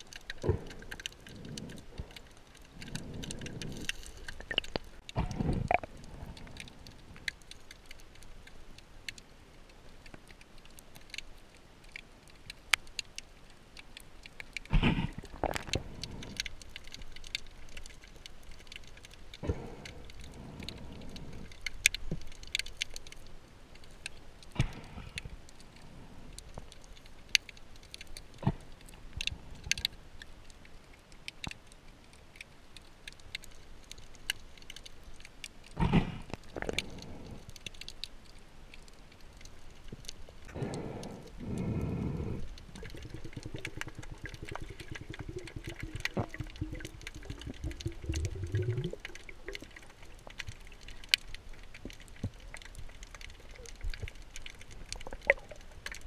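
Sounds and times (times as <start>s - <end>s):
underwater rush of noise: 0.0s - 7.9s, 40.4s - 56.0s
muffled underwater clicks and knocks: 0.0s - 56.0s.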